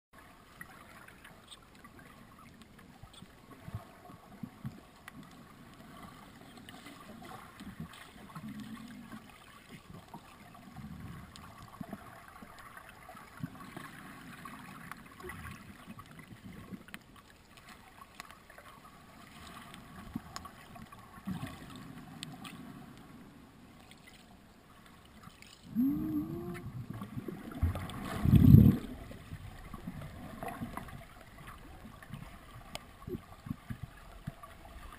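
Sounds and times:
muffled underwater noise: 25.7s - 29.3s.

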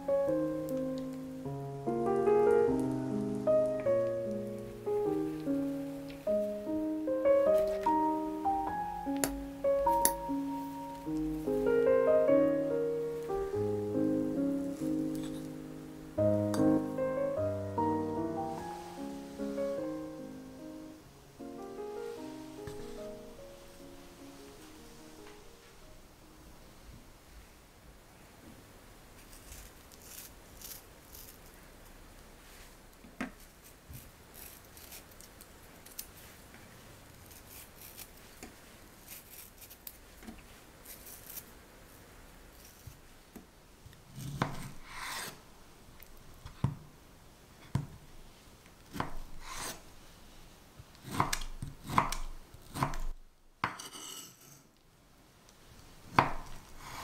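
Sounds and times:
knife scraping fruit skin: 29.3s - 31.6s, 33.6s - 35.3s, 37.2s - 38.2s, 39.0s - 40.0s, 40.8s - 41.5s, 44.1s - 45.4s, 48.9s - 49.8s
knife cutting on wooden board: 44.2s - 45.4s, 49.0s - 49.8s.

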